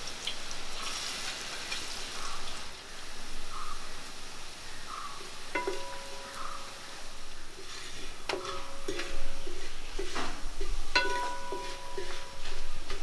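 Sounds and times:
metal utensil clinking on pot: 5.5s - 6.8s, 8.2s - 13.0s.

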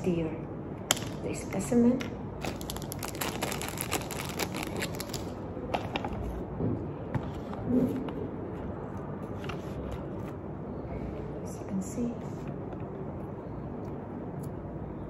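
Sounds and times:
plastic packaging crinkling: 2.4s - 5.4s.

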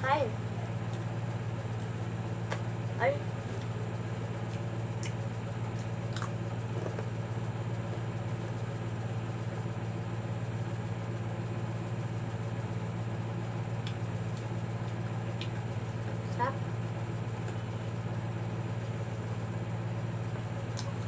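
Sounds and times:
steady low hum: 0.0s - 21.0s
person chewing brittle candy: 4.4s - 7.1s.

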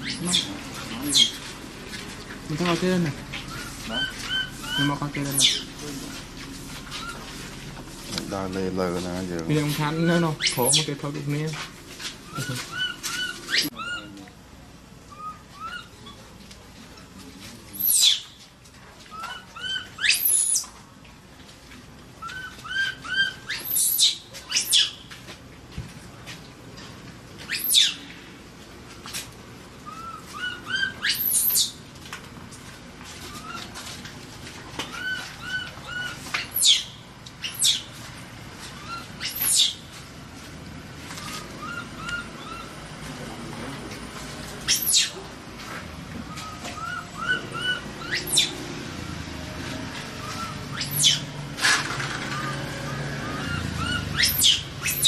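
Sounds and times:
baby monkey screaming: 0.0s - 1.4s, 3.5s - 5.7s, 12.3s - 14.0s, 17.8s - 18.2s, 19.1s - 20.7s, 22.3s - 25.0s, 27.5s - 28.0s, 29.9s - 31.7s, 34.9s - 37.9s, 38.8s - 39.8s, 44.7s - 45.2s, 46.4s - 48.6s, 50.2s - 51.3s, 53.2s - 55.0s
baby monkey squeaks: 0.0s - 1.4s, 3.5s - 5.7s, 6.9s - 7.2s, 10.0s - 10.9s, 12.3s - 14.1s, 17.8s - 18.4s, 19.1s - 20.7s, 22.3s - 25.0s, 27.5s - 28.0s, 29.9s - 31.8s, 34.9s - 37.9s, 38.8s - 39.8s, 44.7s - 45.2s, 46.4s - 48.6s, 50.2s - 51.4s, 53.2s - 55.0s.

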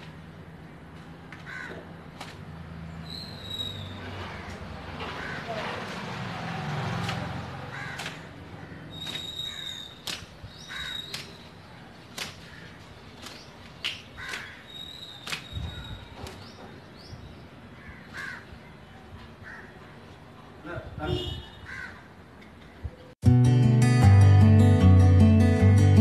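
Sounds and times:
crows cawing: 1.4s - 1.9s, 4.2s - 5.6s, 7.6s - 9.9s, 10.6s - 11.2s, 12.4s - 12.8s, 14.2s - 14.7s, 17.8s - 18.6s, 19.4s - 19.8s, 21.6s - 22.1s
wet towel slapping hair: 9.0s - 9.3s, 10.0s - 10.4s, 11.0s - 11.5s, 12.1s - 12.5s, 13.2s - 14.5s, 15.2s - 15.5s.

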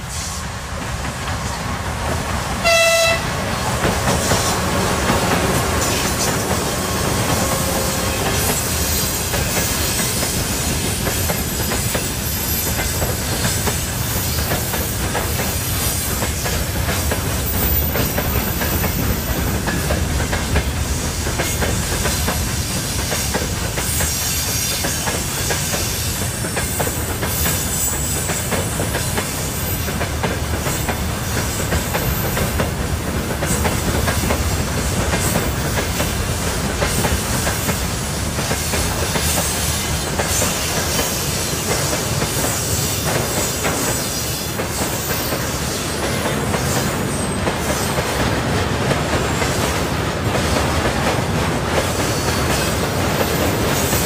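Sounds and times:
freight train rumbling past: 0.0s - 54.0s
train horn blast: 2.6s - 3.4s, 6.8s - 9.2s.

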